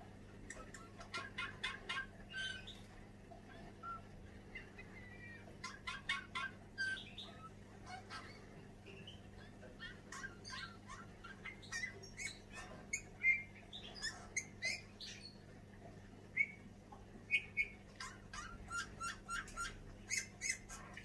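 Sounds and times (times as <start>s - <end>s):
bullfinch singing: 3.5s - 15.4s, 17.3s - 21.0s.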